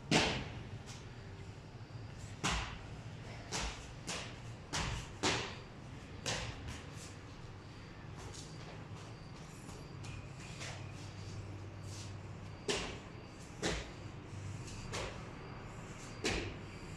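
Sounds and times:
shoes thumping on concrete stairs: 0:12.6 - 0:14.0.

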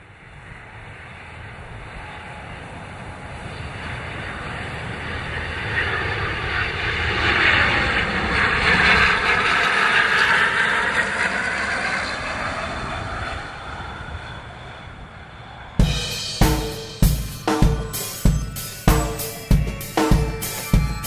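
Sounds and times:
turboprop airliner flying overhead: 0:00.0 - 0:15.8.

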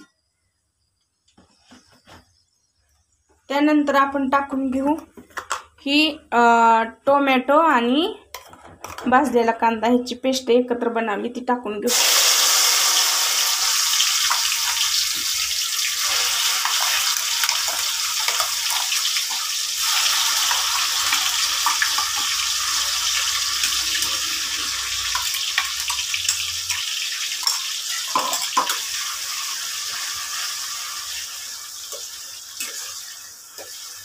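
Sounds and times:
paste sizzling in hot oil: 0:11.9 - 0:34.0.

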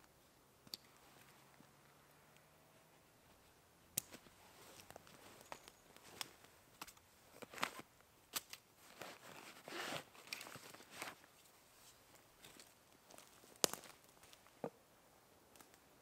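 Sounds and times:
backpack straps rustling and clicking: 0:04.0 - 0:11.5
axe scraping out from straps: 0:09.0 - 0:11.2.

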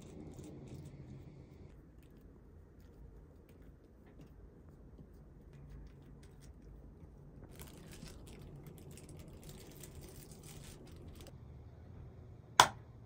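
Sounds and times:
plastic wrap crinkling: 0:07.4 - 0:11.4.

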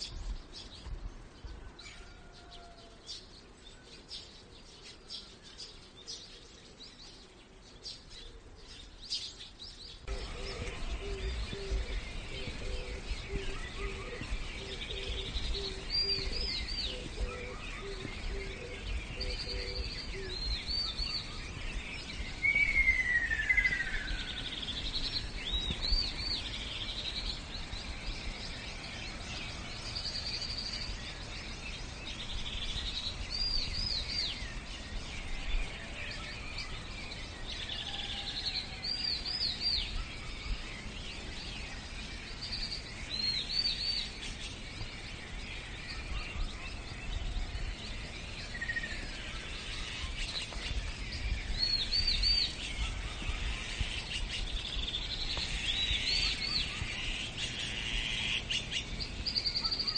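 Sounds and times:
bird chirping: 0:00.0 - 0:59.9
descending whistled bird call: 0:10.0 - 0:27.3, 0:32.3 - 0:41.0.

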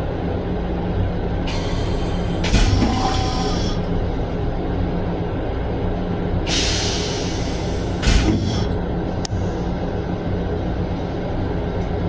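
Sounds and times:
train rumble: 0:00.0 - 0:12.0
toilet flush rush and thump: 0:08.0 - 0:08.6.

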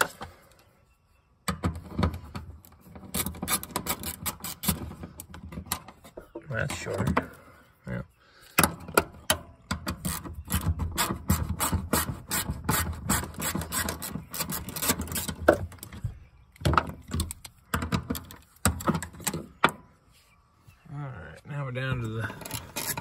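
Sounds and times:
metal-on-metal rasping: 0:02.9 - 0:05.3, 0:09.9 - 0:15.7, 0:22.3 - 0:23.0.

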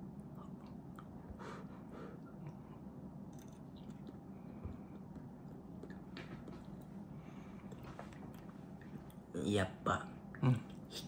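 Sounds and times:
low room hum: 0:00.0 - 0:11.0
quiet chewing: 0:02.2 - 0:09.3.

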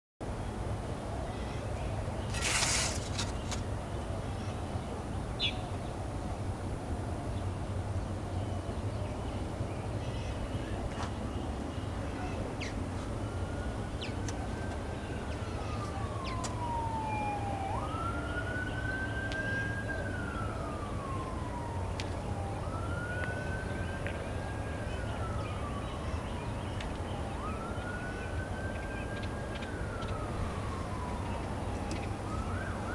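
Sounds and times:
high bird calls: 0:05.4 - 0:05.8, 0:11.7 - 0:12.8
siren wailing: 0:11.8 - 0:32.9.

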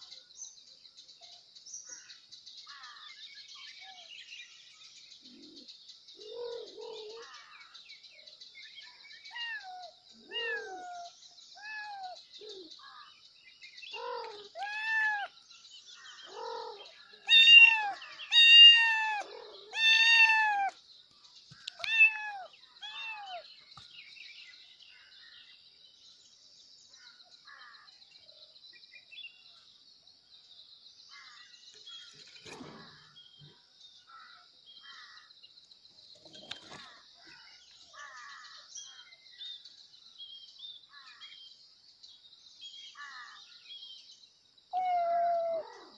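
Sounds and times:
kittens meowing: 0:09.3 - 0:12.2, 0:14.0 - 0:15.3, 0:16.4 - 0:20.8, 0:21.7 - 0:23.4, 0:44.8 - 0:45.7.

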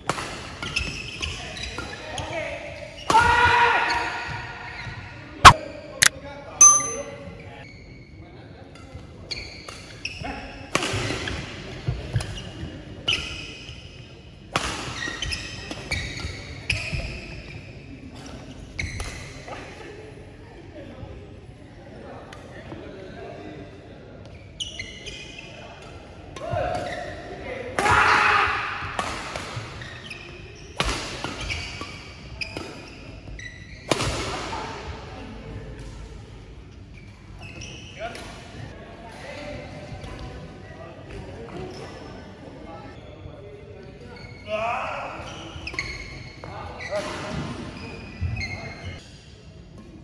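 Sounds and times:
short high ringing tones: 0:06.6 - 0:07.1.

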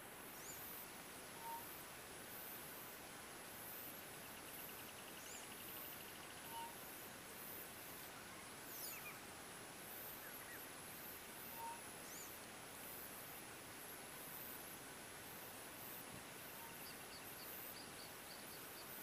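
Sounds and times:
insects trilling: 0:14.2 - 0:19.0.

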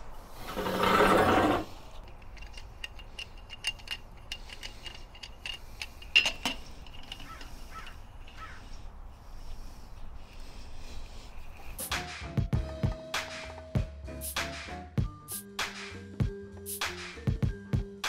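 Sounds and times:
metal chair dragged on concrete: 0:00.3 - 0:01.9.

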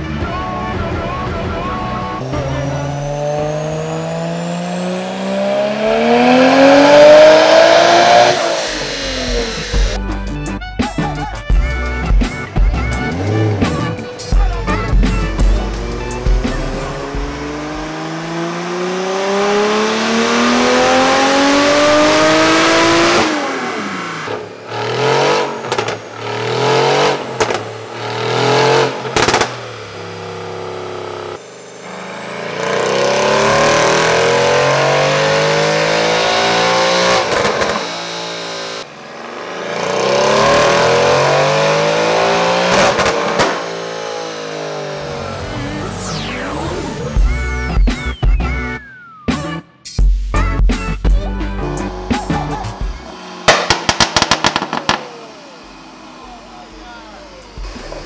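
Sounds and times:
car engine revving: 0:00.0 - 0:49.6, 0:50.5 - 0:58.0
sharp exhaust cracks: 0:24.3 - 0:32.3, 0:51.5 - 0:56.4.

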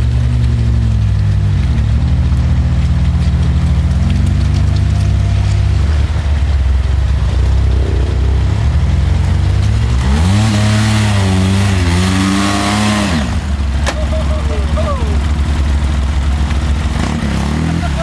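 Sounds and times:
tyres churning mud: 0:00.0 - 0:18.0
engine revving: 0:01.7 - 0:18.0.

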